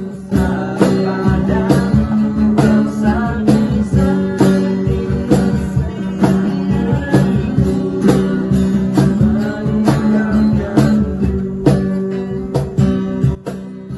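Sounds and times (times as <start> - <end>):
guitar music over steady beat: 0.0 - 13.9.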